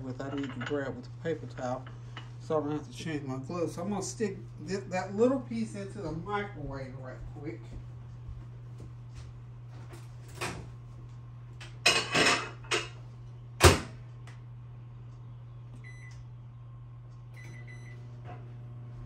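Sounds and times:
microwave humming: 0.0s - 19.0s
microwave door slamming shut: 13.6s - 14.0s
keypad beeps: 17.4s - 18.0s.

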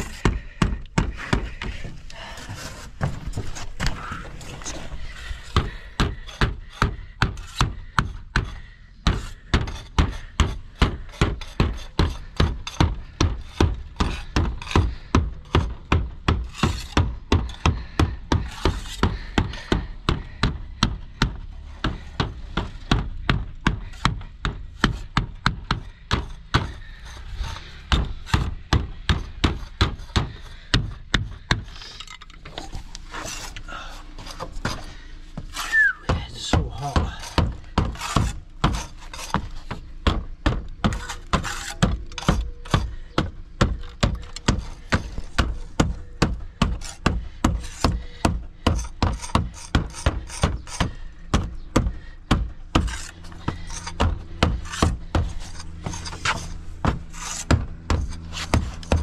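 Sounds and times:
hammer knocking on lead: 36.1s - 38.8s.

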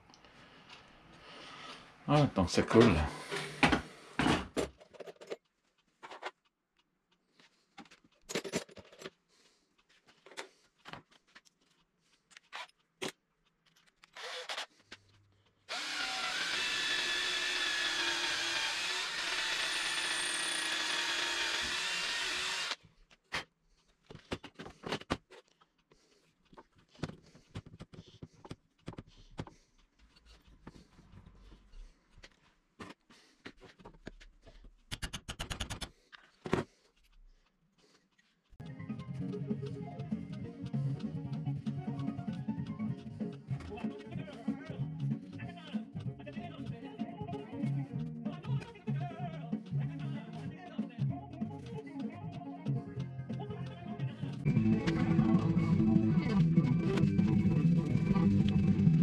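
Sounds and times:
cordless drill boring into wood: 14.2s - 14.7s, 15.7s - 22.8s
knocks and clicks of tools: 33.8s - 36.7s.

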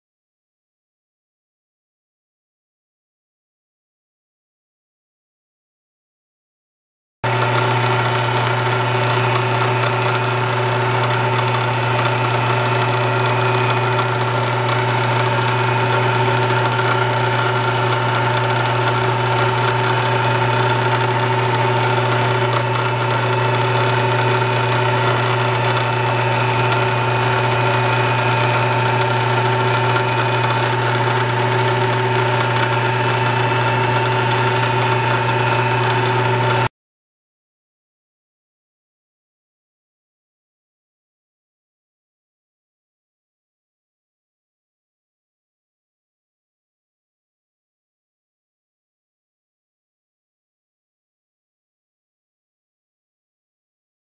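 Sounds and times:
milling machine humming: 7.3s - 36.7s.

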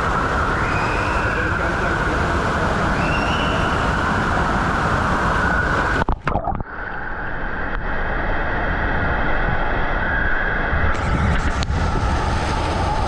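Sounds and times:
water rushing down slide: 0.0s - 6.0s, 10.9s - 13.0s
water splashing: 0.2s - 6.7s.

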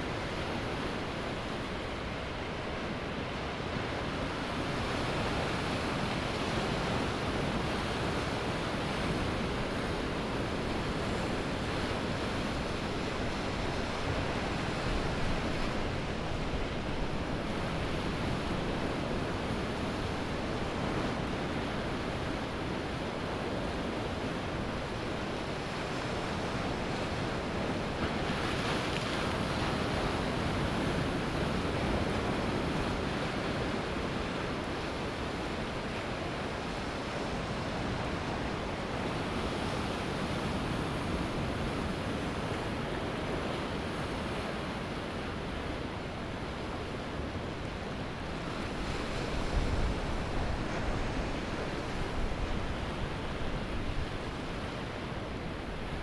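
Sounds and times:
ocean waves breaking on beach: 0.0s - 56.0s.

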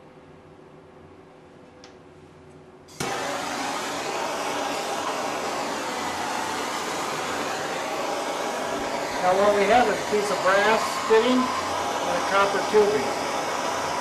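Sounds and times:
gas torch igniting click: 2.9s - 13.8s
torch flame hissing: 2.9s - 14.0s.

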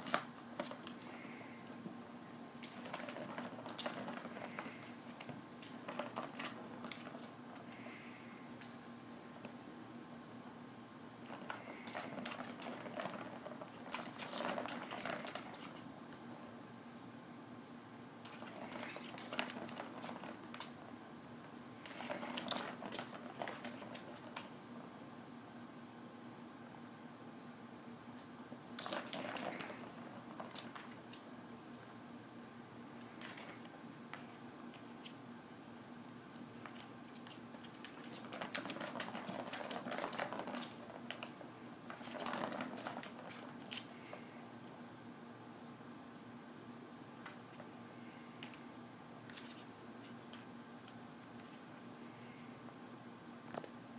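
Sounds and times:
faint steady hum: 0.0s - 53.9s
ball rattling on plastic track: 11.3s - 15.8s, 28.8s - 31.0s, 37.7s - 43.5s.

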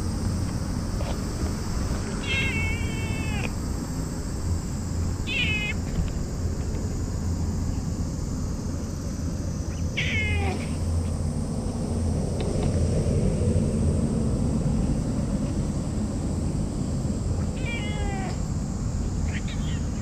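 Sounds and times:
steady low rumble: 0.0s - 20.0s
cat meowing: 2.2s - 3.6s, 5.2s - 5.9s, 9.8s - 10.8s, 17.4s - 18.5s, 19.2s - 20.0s.

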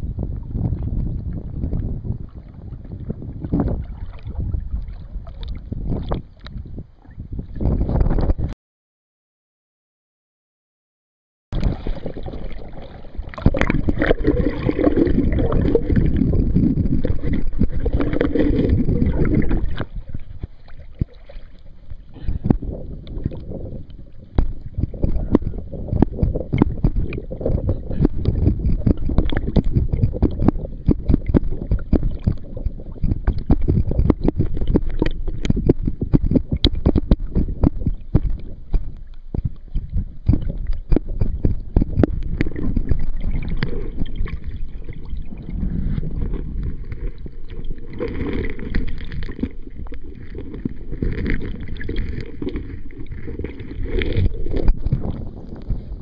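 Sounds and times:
water splashing and bubbling: 0.0s - 8.5s, 11.6s - 56.0s.

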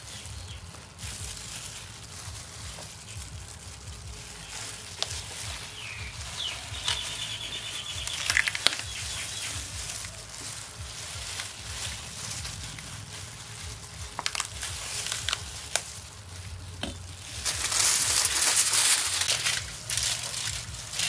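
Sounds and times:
leaf rustling and crinkling: 0.0s - 21.0s
high pulsing chirp: 5.2s - 10.2s.

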